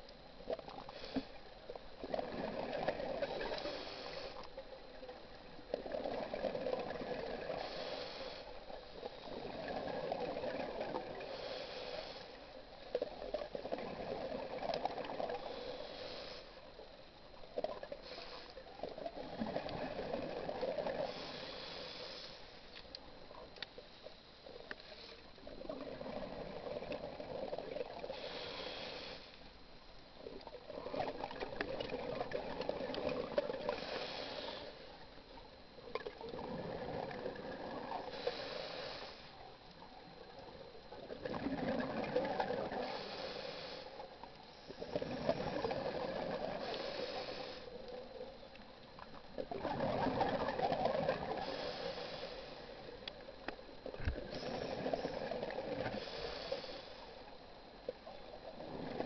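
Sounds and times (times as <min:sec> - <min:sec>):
regulator inhale hiss: 0:00.7 - 0:01.7, 0:03.3 - 0:04.6, 0:07.4 - 0:10.5, 0:11.1 - 0:12.6, 0:15.2 - 0:16.9, 0:17.8 - 0:19.7, 0:20.7 - 0:23.4, 0:24.4 - 0:26.4, 0:27.6 - 0:29.6, 0:33.6 - 0:35.0, 0:37.9 - 0:39.9, 0:42.4 - 0:48.3, 0:51.0 - 0:59.0
gurgling exhaled bubbles: 0:02.0 - 0:03.9, 0:05.7 - 0:07.9, 0:09.0 - 0:11.4, 0:12.9 - 0:15.6, 0:18.8 - 0:21.4, 0:25.4 - 0:28.3, 0:30.5 - 0:34.5, 0:35.9 - 0:38.8, 0:40.3 - 0:43.2, 0:44.8 - 0:47.4, 0:49.4 - 0:52.1, 0:53.8 - 0:56.6, 0:58.4 - 0:59.0.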